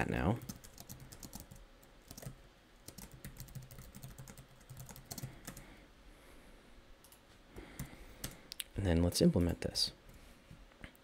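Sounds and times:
typing on computer keyboard: 0.4 - 5.6.

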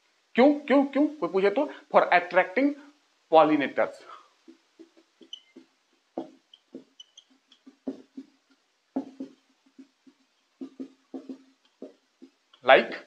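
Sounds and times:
marker squeaking on whiteboard: 4.4 - 12.9.

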